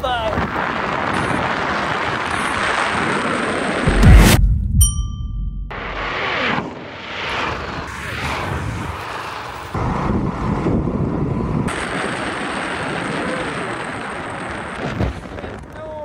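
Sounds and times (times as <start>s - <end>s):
wind rushing over microphone: 0.0s - 16.0s
road noise: 5.7s - 16.0s.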